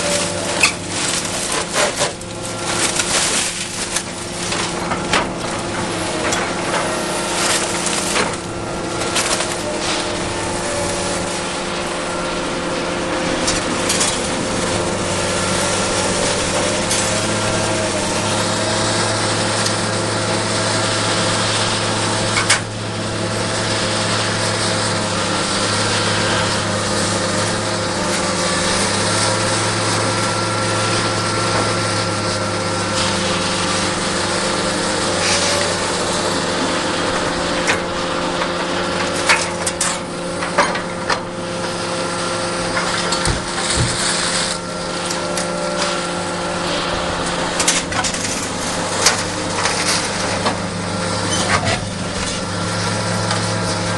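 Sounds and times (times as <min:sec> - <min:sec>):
excavator diesel engine running: 0:00.0 - 0:53.9
scrap metal clanking: 0:00.0 - 0:53.9.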